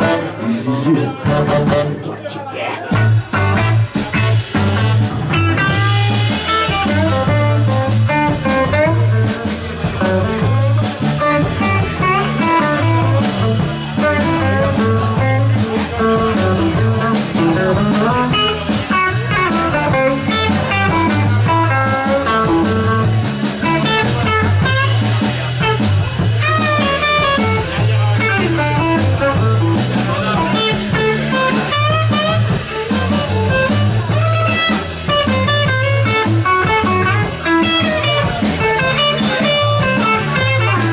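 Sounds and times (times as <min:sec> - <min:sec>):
drum kit: 0:00.0 - 0:02.1, 0:02.9 - 0:40.9
electric bass line: 0:02.9 - 0:40.9
electric guitar solo: 0:02.9 - 0:40.9.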